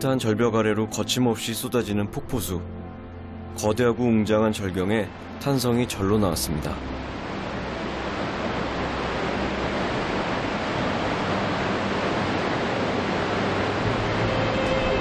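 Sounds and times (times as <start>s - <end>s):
waterfall rushing: 6.4s - 15.0s.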